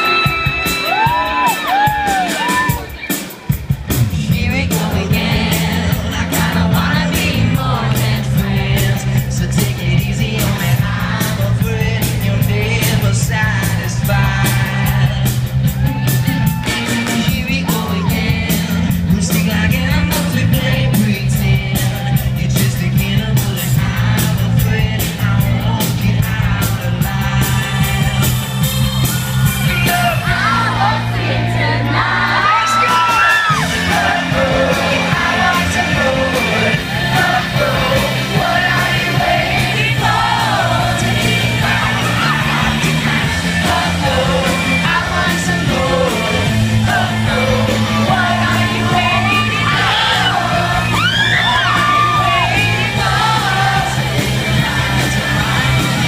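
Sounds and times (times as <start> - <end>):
drums: 0.0 - 56.0
live rock band playing: 0.0 - 56.0
singer singing over band: 4.0 - 28.4, 29.5 - 56.0.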